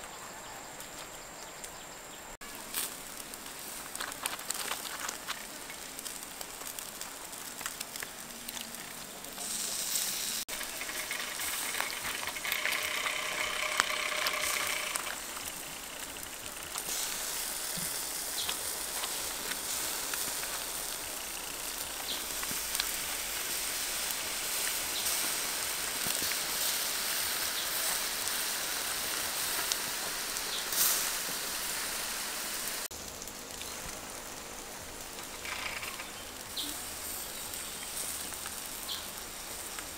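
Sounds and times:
duck sizzling on a grill: 2.4s - 39.9s.

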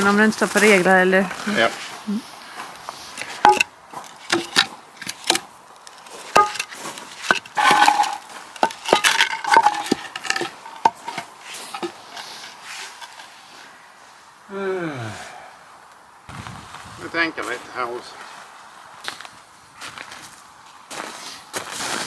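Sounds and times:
wood scraping on concrete: 2.8s - 13.7s
wood knocking on concrete: 3.3s - 5.4s, 6.3s - 12.2s.

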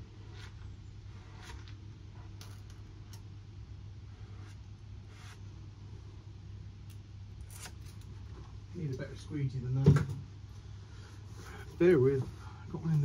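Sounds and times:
squeegee scraping over decal: 0.0s - 2.7s
steady low hum: 0.0s - 13.0s.

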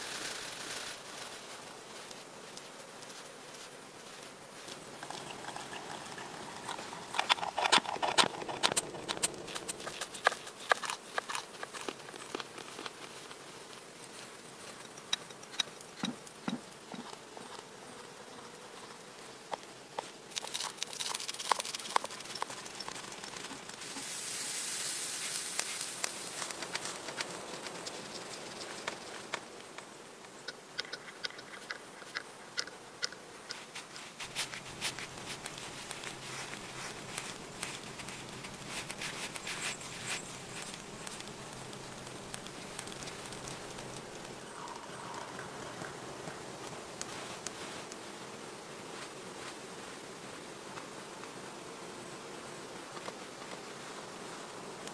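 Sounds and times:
food sizzling: 4.8s - 10.4s, 21.6s - 27.2s, 34.1s - 47.3s.

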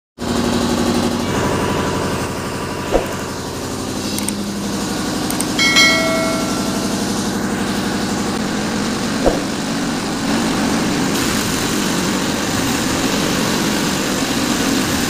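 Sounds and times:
engine-like running drone: 0.2s - 15.0s
steel tubing clanging: 5.6s - 7.4s.

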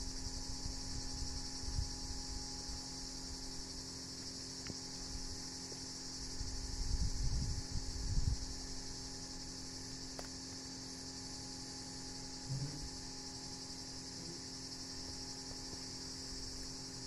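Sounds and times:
insects chorus: 0.0s - 17.0s
faint low hum: 11.4s - 17.0s.

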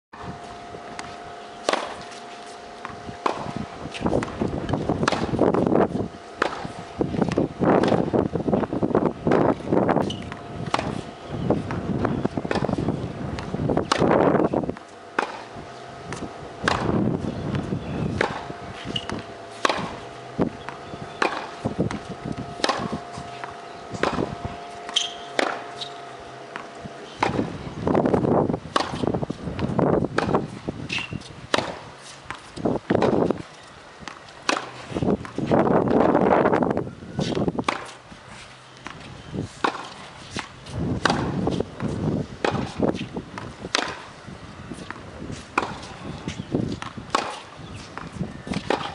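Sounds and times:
tennis ball struck by racquet: 0.9s - 48.9s
wind gusts on microphone: 2.7s - 14.8s, 15.4s - 24.8s, 26.7s - 48.9s
ball bouncing on hard court: 16.1s - 25.9s.

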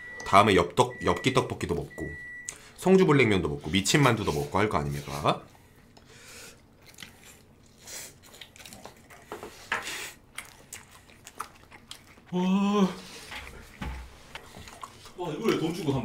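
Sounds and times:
slurping and chewing noodles: 6.0s - 16.0s
person humming: 12.3s - 13.0s.

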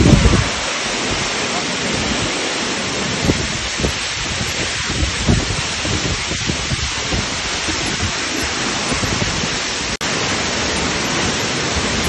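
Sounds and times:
waterfall rushing and splashing: 0.0s - 12.0s.

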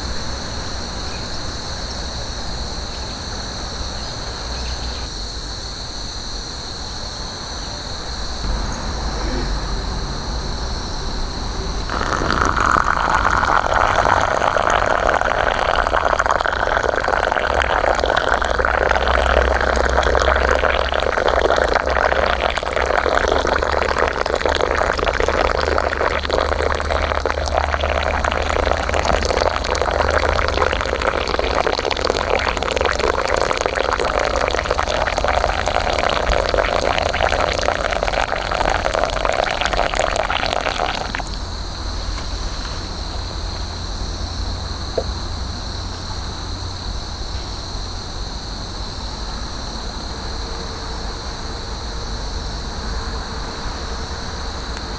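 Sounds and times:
water pouring into glass bowl: 11.9s - 41.4s.

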